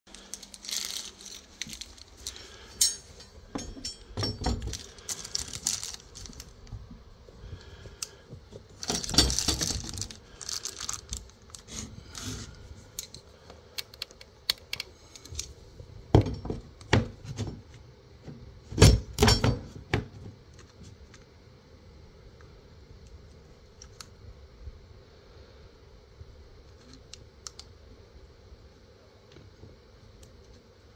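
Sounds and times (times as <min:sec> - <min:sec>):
wire holder clinking and rattling: 0:00.2 - 0:06.6, 0:08.7 - 0:11.3.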